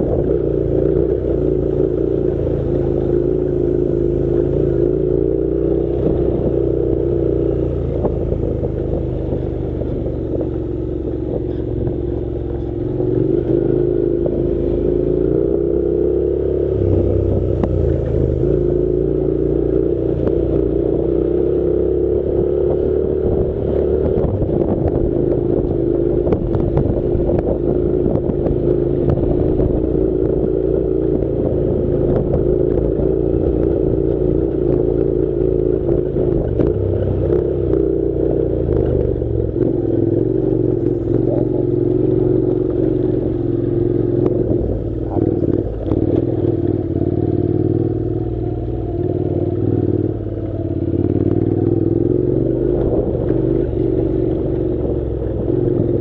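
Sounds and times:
motorcycle engine running: 0:00.0 - 0:56.0
stones ticking under tyres: 0:17.4 - 0:48.4.

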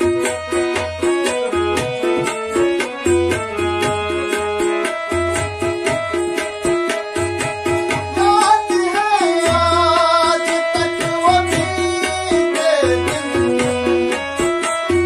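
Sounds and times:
harmonium held notes: 0:00.0 - 0:15.0
tabla rhythm: 0:00.0 - 0:15.0
man singing ornamented line: 0:08.2 - 0:14.2.

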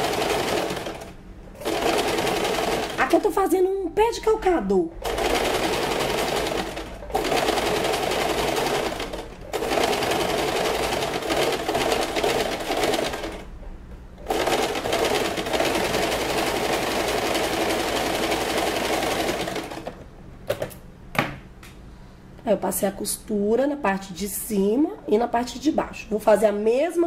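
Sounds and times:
electric sewing machine running: 0:00.0 - 0:03.3, 0:05.0 - 0:13.5, 0:14.2 - 0:20.0.

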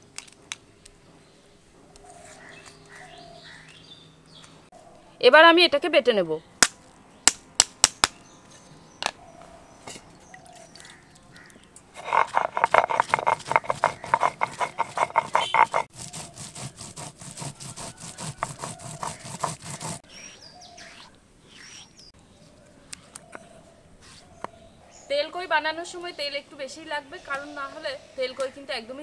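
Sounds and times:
light scraping of paste: 0:09.9 - 0:20.0
stone roller grinding spices: 0:12.0 - 0:20.0.

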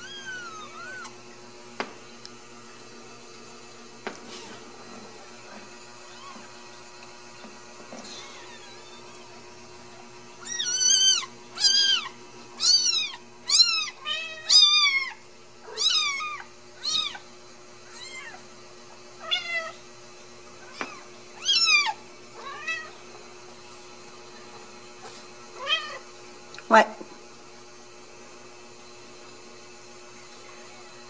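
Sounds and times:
kittens mewing: 0:00.0 - 0:01.2, 0:07.9 - 0:09.4, 0:10.4 - 0:17.2.

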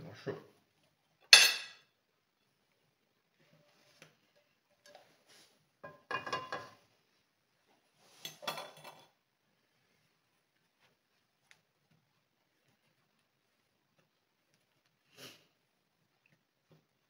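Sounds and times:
frying pan clattering on metal grate: 0:05.8 - 0:06.8.

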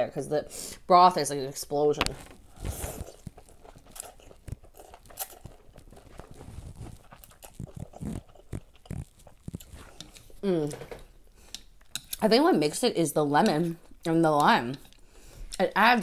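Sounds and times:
slurping soup: 0:02.5 - 0:12.2
chewing with wet smacks: 0:03.0 - 0:10.4.

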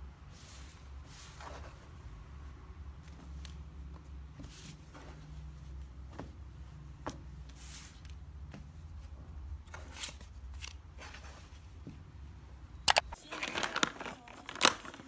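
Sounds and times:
paper bag tearing open: 0:13.2 - 0:15.0.

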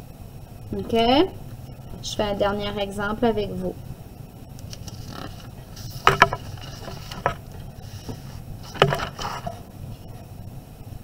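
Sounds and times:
paper being handled: 0:04.7 - 0:09.7
sharp paper rustles: 0:04.8 - 0:09.6.

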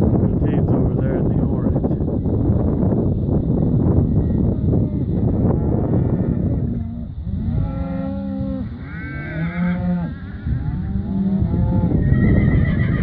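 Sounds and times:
cows mooing: 0:04.2 - 0:13.0.

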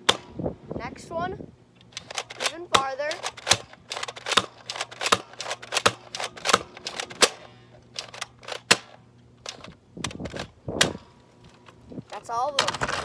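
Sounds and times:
toy blaster clacks and snaps: 0:01.9 - 0:07.4, 0:08.0 - 0:11.0.

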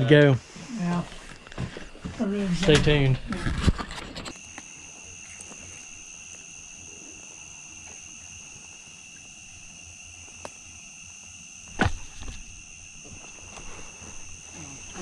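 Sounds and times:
night insects trilling: 0:00.0 - 0:15.0
sharp thump: 0:11.7 - 0:12.5.

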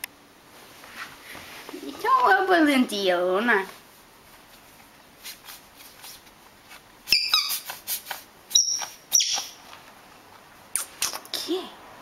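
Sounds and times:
squeaky dog toy squeaks: 0:07.1 - 0:07.8, 0:08.5 - 0:09.6.

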